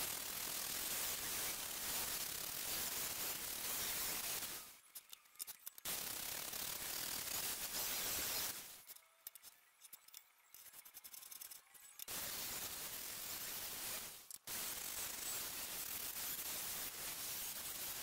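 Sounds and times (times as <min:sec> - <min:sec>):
steel parts clicking and sliding: 0:04.3 - 0:12.2.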